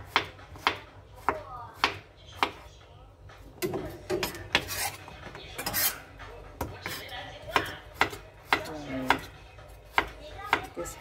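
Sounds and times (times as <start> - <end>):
knife scraping strokes: 4.5 - 6.1.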